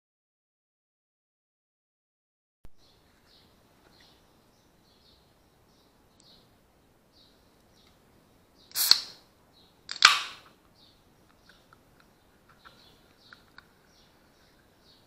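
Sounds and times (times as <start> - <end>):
can tab cracking open with hiss: 8.7 - 9.2, 9.9 - 10.5.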